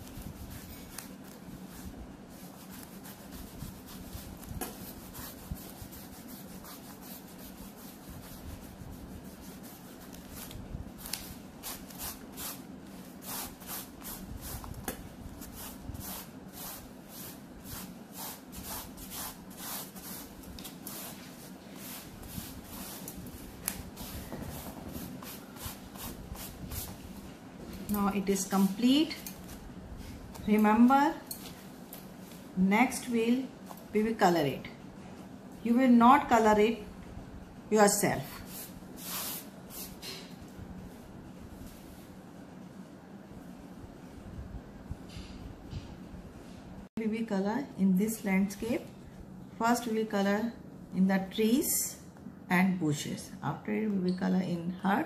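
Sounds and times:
eraser rubbing on paper: 0.1s - 14.8s, 15.4s - 27.0s.

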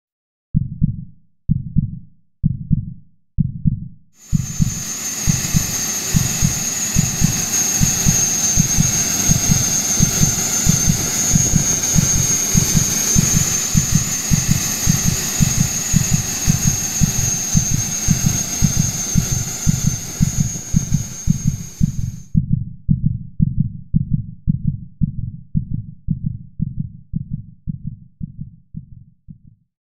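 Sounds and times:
heartbeat thumping: 0.6s - 29.7s
rushing hiss with high whine: 4.2s - 22.2s.

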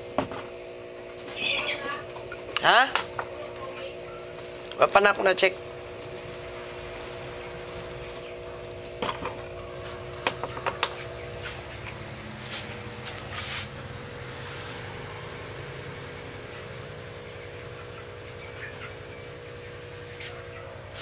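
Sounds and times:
steady hum: 0.0s - 21.0s.

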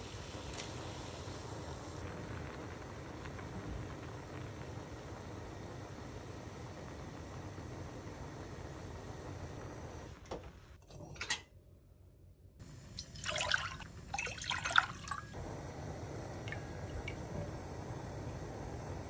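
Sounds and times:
water splashing into pot: 12.8s - 15.4s, 16.4s - 17.5s.

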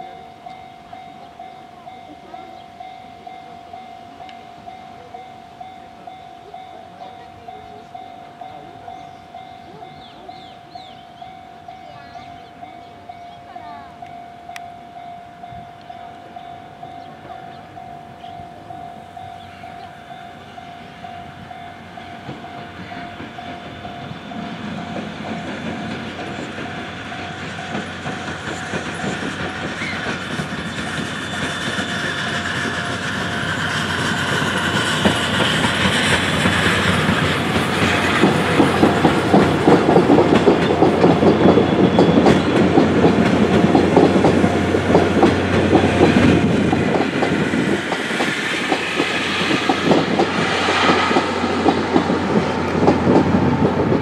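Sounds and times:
steam train passing: 0.0s - 54.0s
wheels clattering over rail joints: 22.0s - 54.0s.

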